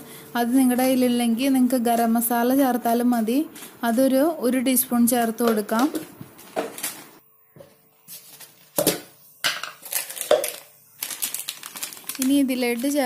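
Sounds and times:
plastic packet rustling: 5.0s - 7.2s, 9.6s - 13.0s.

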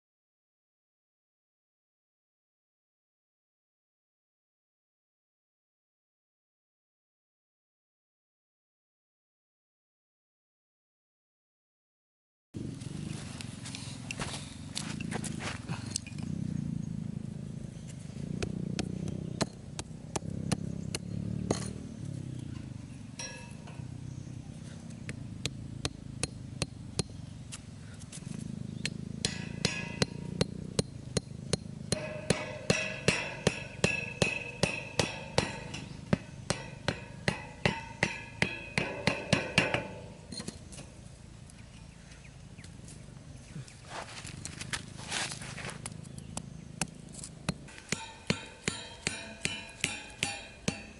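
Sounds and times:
hatchet hammering wooden stake: 18.4s - 21.8s, 25.0s - 27.2s, 28.8s - 40.6s, 46.3s - 50.9s.

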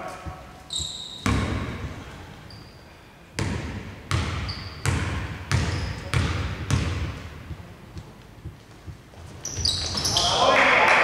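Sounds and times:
basketball bouncing on hardwood: 0.3s - 2.0s, 3.4s - 9.0s.

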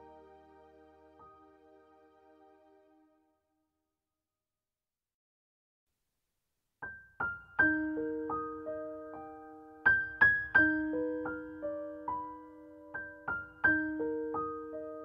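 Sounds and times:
piano music: 0.0s - 3.1s, 7.6s - 15.0s.

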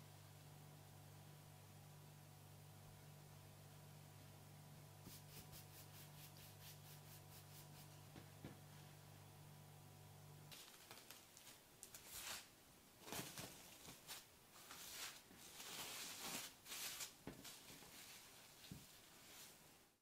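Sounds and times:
cling film crinkling and rustling: 10.5s - 19.0s.

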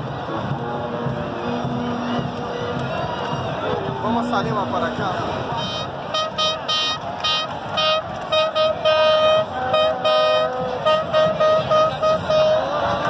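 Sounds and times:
crowd noise: 0.0s - 13.0s
horn tooting: 4.2s - 13.0s
lower horn honking: 4.6s - 13.0s.

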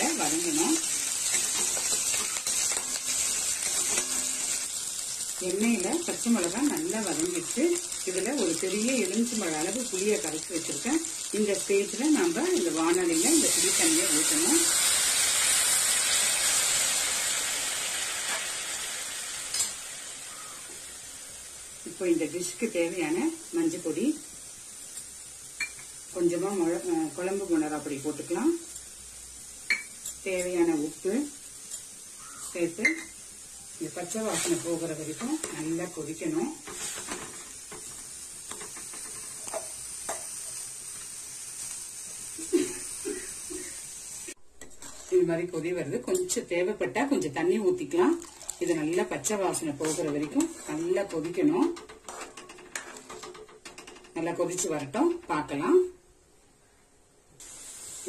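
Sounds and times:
liquid sizzling in hot oil: 0.0s - 56.0s, 57.3s - 58.0s
ladle scraping a pan: 1.2s - 4.7s, 34.2s - 34.8s, 36.6s - 40.2s, 44.6s - 45.3s, 49.5s - 54.1s.

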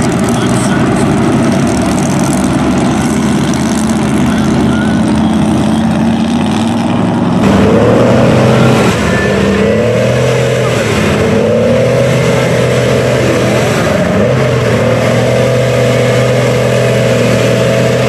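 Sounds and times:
truck engine revving: 0.0s - 18.0s
truck wading through mud and water: 0.0s - 18.0s.

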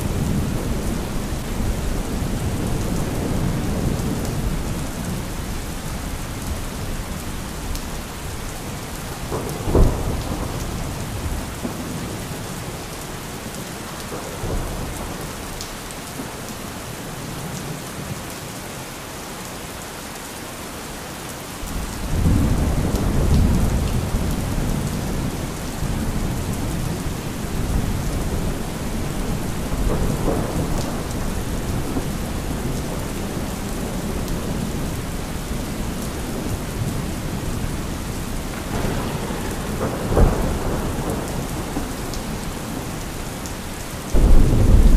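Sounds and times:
thunder rumbling: 0.0s - 7.7s, 9.0s - 12.8s, 21.6s - 44.9s
rain hissing: 21.6s - 44.9s.

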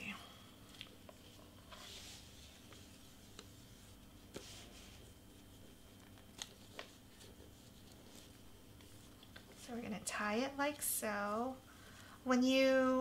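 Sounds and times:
ribbon rustling: 0.6s - 10.0s.

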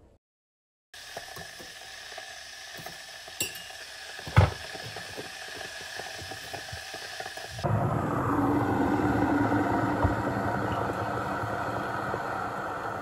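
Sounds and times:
electric kettle hiss: 1.0s - 13.0s
spoon clinking in metal mug: 3.4s - 3.8s.

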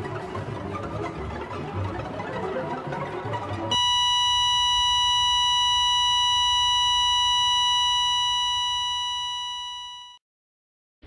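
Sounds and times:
heart monitor flatline beep: 3.7s - 10.2s.

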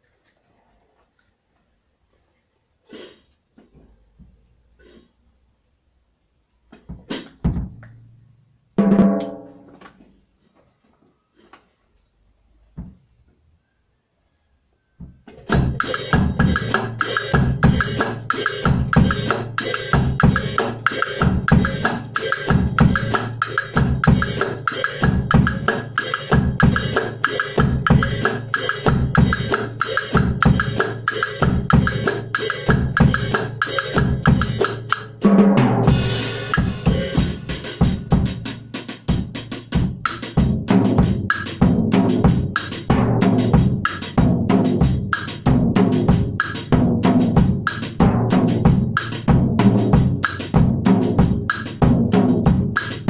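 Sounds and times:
bass drum: 6.9s - 7.8s, 15.5s - 53.0s
drum kit playing cumbia groove: 7.0s - 7.8s, 8.8s - 9.8s, 15.3s - 53.0s
clave pattern on muffled drum: 8.8s - 9.7s.

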